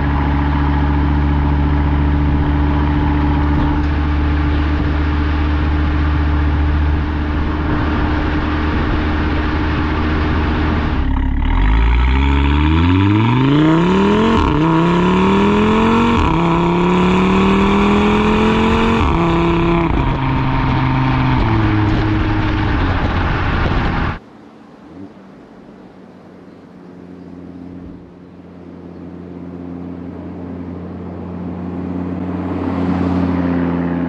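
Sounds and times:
car exhaust revving with upshifts: 0.0 - 24.2.

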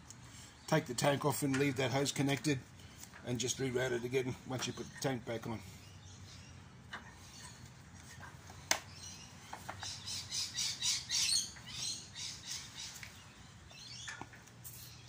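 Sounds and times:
bird chirping: 4.4 - 15.0.

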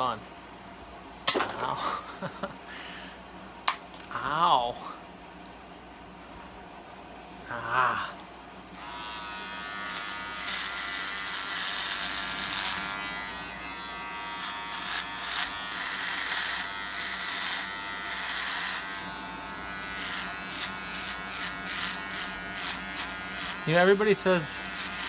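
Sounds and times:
electric razor buzzing: 8.7 - 25.0.

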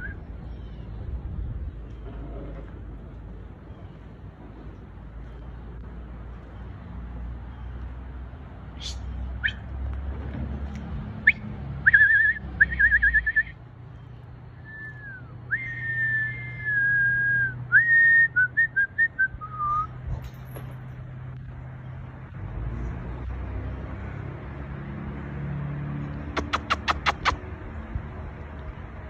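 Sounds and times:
person whistling: 14.6 - 19.9.

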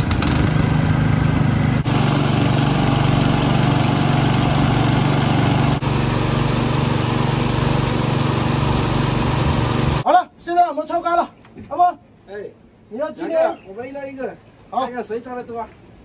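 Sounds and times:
petrol water pumps running: 0.0 - 10.0
water gushing from outlets: 1.9 - 10.0.

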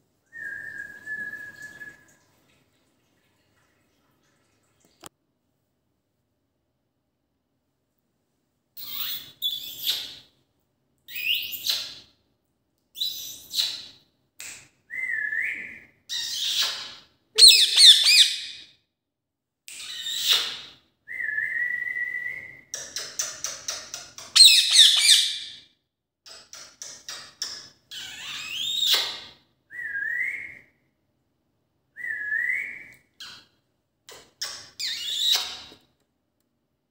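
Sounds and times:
parakeet whistles: 17.4 - 18.6, 24.4 - 25.5.

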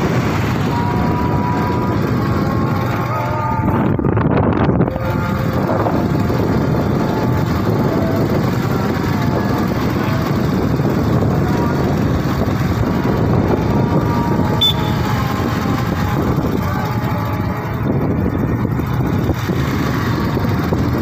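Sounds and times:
motorcycle engine running: 0.0 - 21.0
wind rushing over microphone: 0.0 - 21.0.

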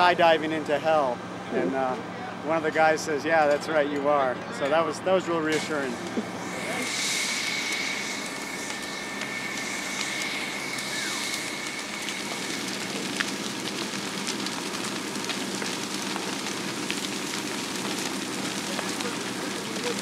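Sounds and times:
fire roaring and crackling: 4.9 - 20.0.

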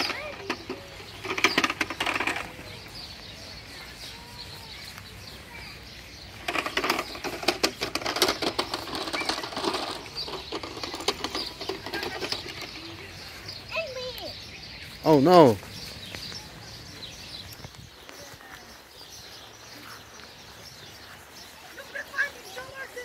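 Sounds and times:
plastic toy rattling and clattering: 0.0 - 2.7, 6.3 - 13.1.

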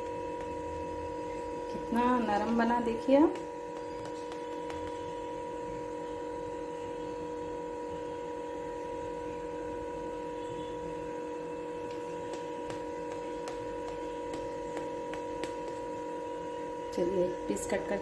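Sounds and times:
steady electrical hum: 0.0 - 18.0.

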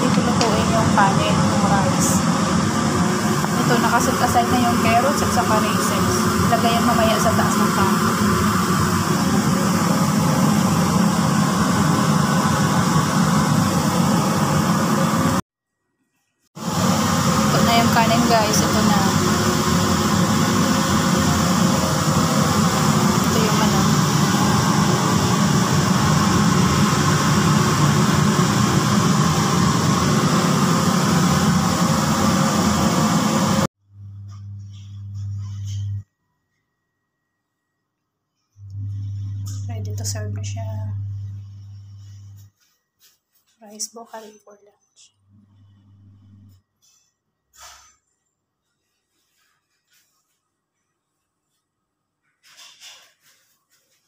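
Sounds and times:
steady mechanical hum: 0.0 - 15.4, 16.6 - 36.0, 38.6 - 42.6
loud rushing machine noise: 16.6 - 33.7
low steady hum: 38.6 - 42.5.

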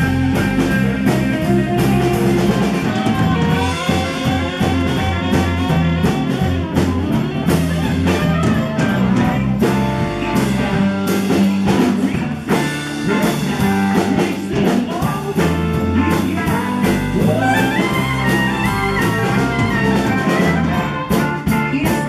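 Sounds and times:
drum kit: 0.0 - 22.0
electric and acoustic guitars: 0.0 - 22.0
trumpet: 1.8 - 11.6, 15.8 - 21.6.

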